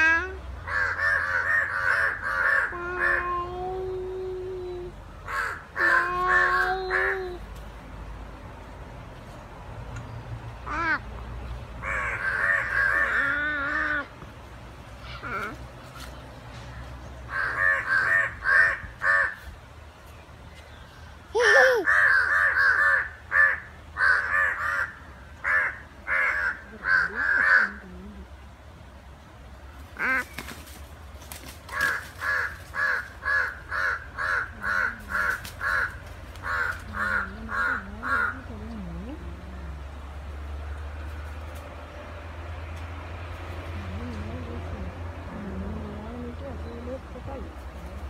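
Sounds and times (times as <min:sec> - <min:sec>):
crows cawing: 0:00.7 - 0:03.1, 0:05.3 - 0:07.1, 0:11.8 - 0:14.0, 0:17.3 - 0:19.5, 0:21.8 - 0:27.8, 0:30.0 - 0:30.4, 0:31.7 - 0:38.4.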